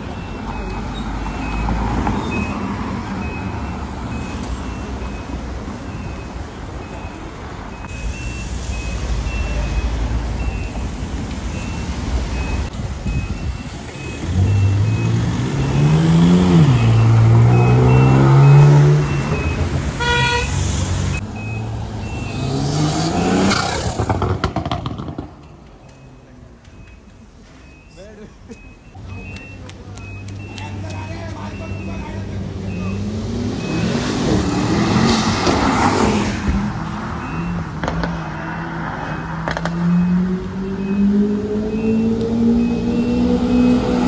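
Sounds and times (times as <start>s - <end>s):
repeating high beep: 0.0s - 10.9s, 11.5s - 19.8s, 21.1s - 23.8s, 25.4s - 33.0s, 33.6s - 35.2s, 37.1s - 37.8s, 39.0s - 44.0s
roadside traffic: 0.0s - 44.0s
car horn honk: 19.9s - 20.7s
car engine revving: 20.8s - 25.3s.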